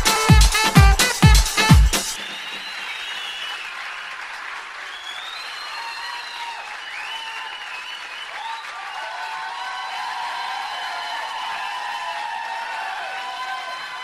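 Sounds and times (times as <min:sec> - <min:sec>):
crowd clapping: 0:00.0 - 0:14.0
faint crowd voices cheering: 0:05.5 - 0:14.0.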